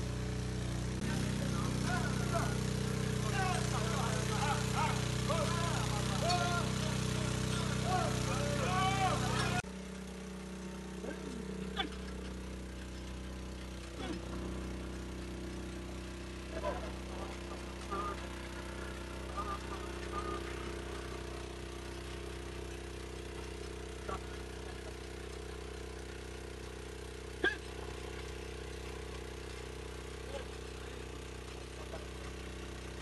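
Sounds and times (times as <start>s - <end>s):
small engine running: 0.0s - 33.0s.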